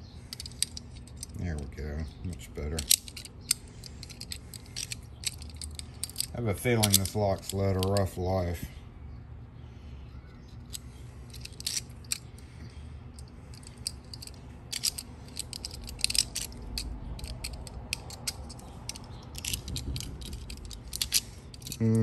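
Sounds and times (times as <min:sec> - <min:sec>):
keys being handled: 0:00.2 - 0:01.4, 0:02.7 - 0:08.0, 0:10.5 - 0:12.4, 0:13.1 - 0:22.0.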